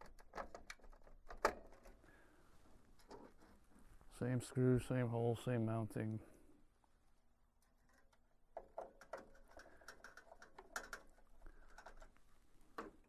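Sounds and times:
screwdriver clicking and scraping: 0:07.6 - 0:12.2.

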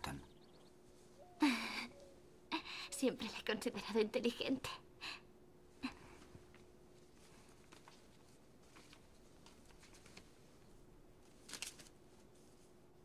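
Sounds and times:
faint steady hum: 0:00.0 - 0:13.0
book pages rustling and turning: 0:06.5 - 0:12.8.

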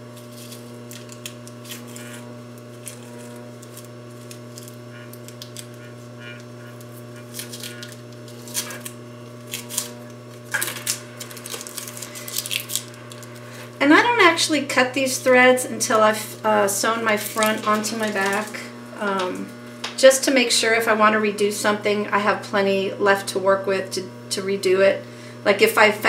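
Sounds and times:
steady low hum: 0:00.0 - 0:26.0
tape peeling and fabric rustling: 0:00.2 - 0:13.4.

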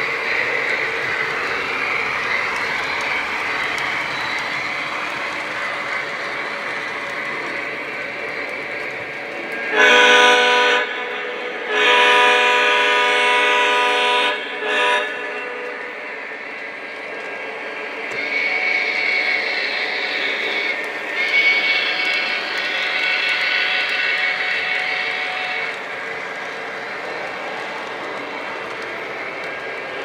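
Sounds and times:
model train running sound: 0:00.0 - 0:30.0
model train whistle: 0:09.7 - 0:16.0.

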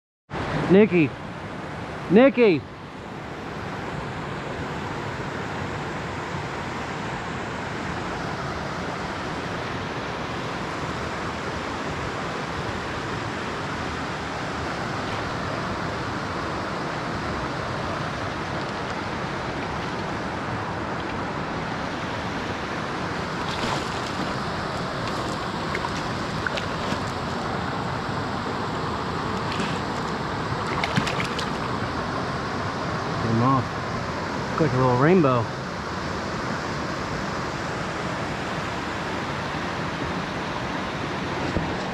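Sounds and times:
river rushing over rocks: 0:00.4 - 0:35.0
light water splashes: 0:23.2 - 0:27.8, 0:29.2 - 0:32.1.

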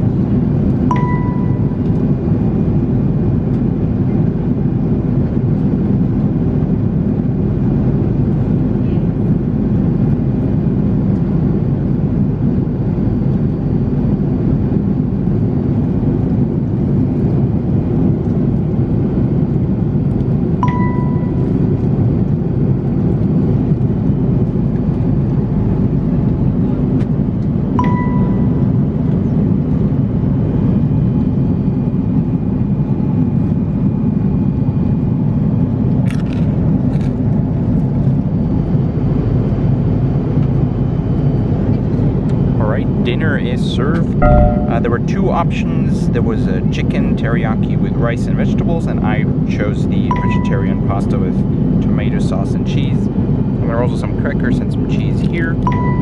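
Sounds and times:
airplane cabin drone: 0:00.0 - 0:56.0
cabin chime: 0:00.9 - 0:01.8, 0:20.6 - 0:21.5, 0:27.8 - 0:28.7, 0:44.2 - 0:45.2, 0:50.1 - 0:50.8, 0:55.7 - 0:56.0.

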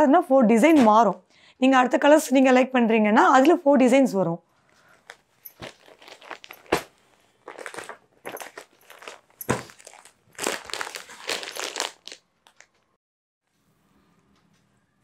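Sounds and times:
plastic packaging crinkling: 0:04.8 - 0:12.9.

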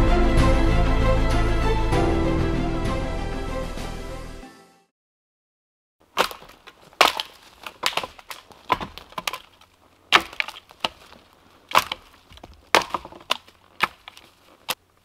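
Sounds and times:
twigs snapping underfoot: 0:06.0 - 0:14.8
footsteps through undergrowth: 0:06.0 - 0:15.0.

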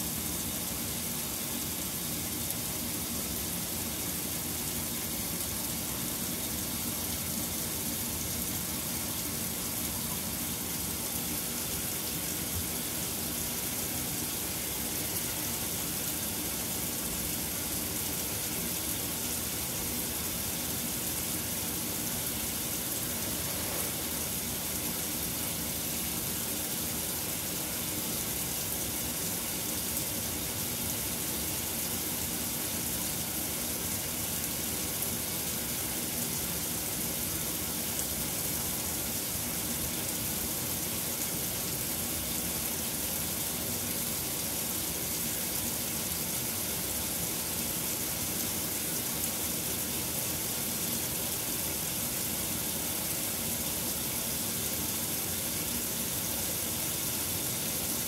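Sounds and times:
washing machine filling with water: 0:00.0 - 0:58.0.

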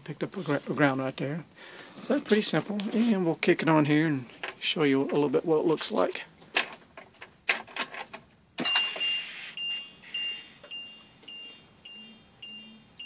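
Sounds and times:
dashboard warning chime beeping: 0:08.6 - 0:13.0.

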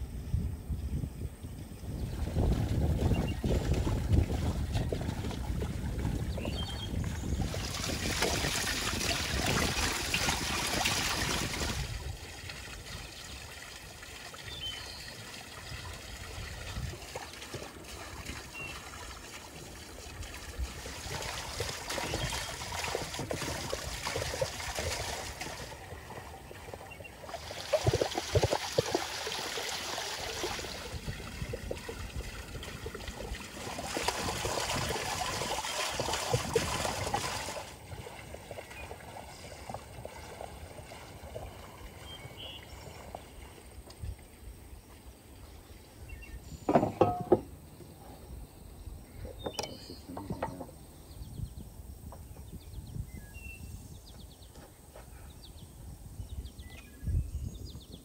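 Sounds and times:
water splashing into a basin: 0:02.1 - 0:44.1.

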